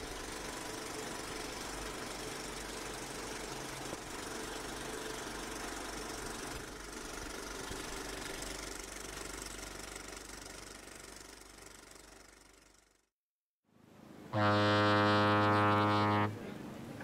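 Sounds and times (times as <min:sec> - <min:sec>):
film projector running: 0:00.0 - 0:12.8.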